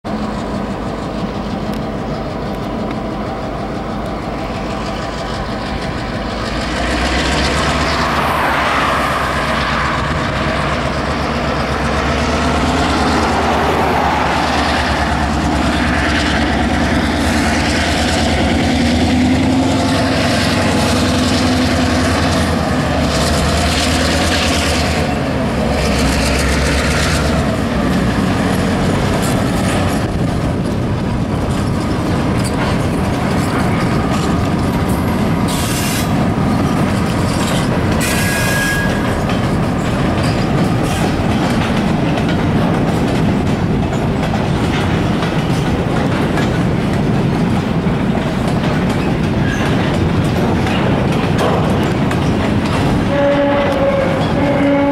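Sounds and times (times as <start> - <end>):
diesel locomotive engine running: 0.0 - 54.9.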